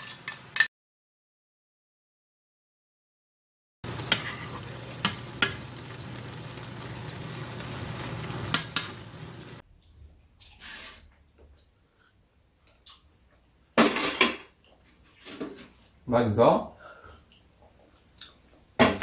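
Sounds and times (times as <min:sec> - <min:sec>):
food sizzling in frying pan: 0:03.8 - 0:09.6.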